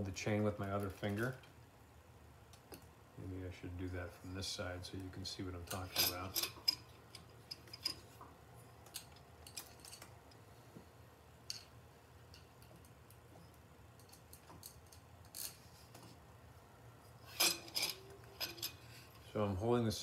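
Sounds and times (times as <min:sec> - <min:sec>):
low steady hum: 0:00.0 - 0:20.0
metallic clicks and clinks: 0:05.6 - 0:08.1, 0:08.8 - 0:10.4, 0:11.4 - 0:15.7.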